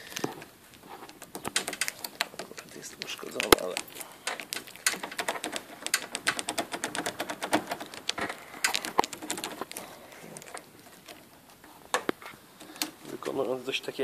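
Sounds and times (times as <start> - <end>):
key clicking in door lock: 1.3 - 2.6, 3.4 - 9.6.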